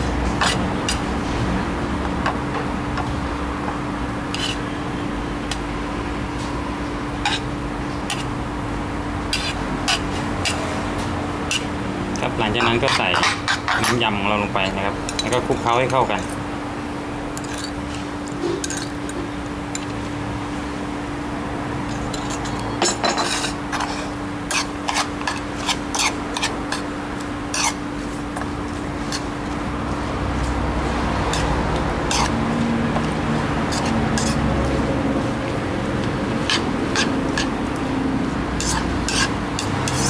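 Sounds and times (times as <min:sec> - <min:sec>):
spoon stirring and scraping: 0:00.3 - 0:01.1, 0:04.3 - 0:04.7, 0:07.3 - 0:07.5, 0:08.1 - 0:08.3, 0:09.3 - 0:10.6, 0:11.4 - 0:14.2, 0:17.3 - 0:19.9, 0:21.9 - 0:34.9, 0:36.0 - 0:37.6, 0:38.6 - 0:40.0.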